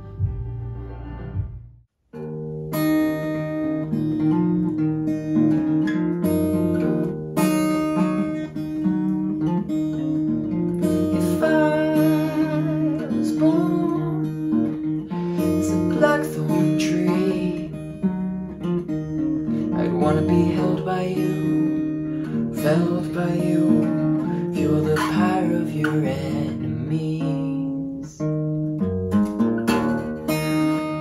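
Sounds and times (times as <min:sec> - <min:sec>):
acoustic guitar chords: 0:00.0 - 0:31.0
man singing softly: 0:11.1 - 0:14.3, 0:15.5 - 0:17.8, 0:19.7 - 0:22.0, 0:22.6 - 0:28.3.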